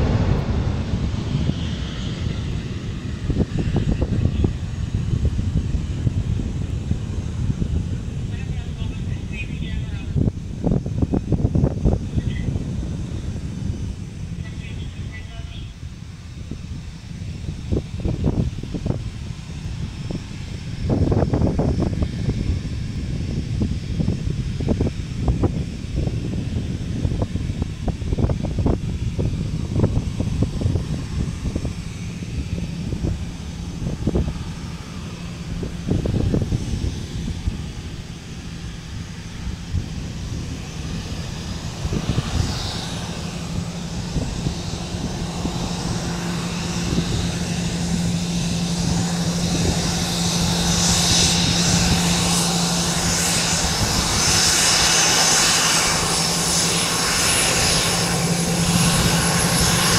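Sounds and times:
jet engines hum and whine: 0.0 - 59.9
wind gusts on microphone: 0.0 - 59.9.

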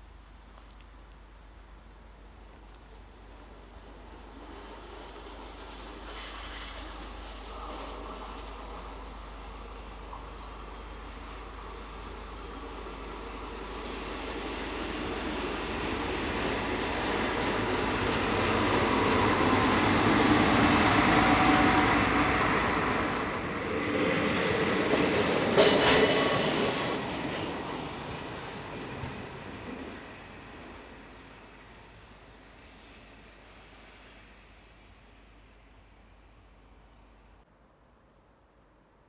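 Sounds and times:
rail vehicle engine and wheels: 0.0 - 39.0
high-pitched wheel squeal: 25.6 - 27.1.

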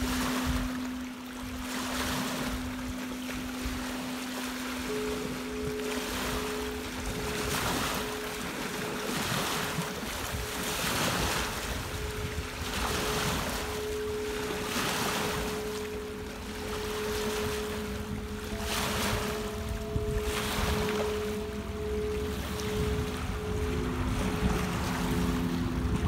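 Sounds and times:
singing bowls ringing: 0.0 - 26.0
waves washing onto pebble shore: 0.0 - 26.0
wind: 0.0 - 26.0.

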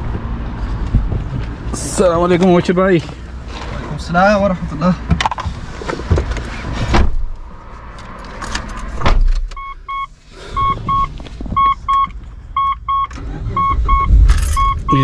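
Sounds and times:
dashboard warning chime double beep: 9.6 - 15.0.

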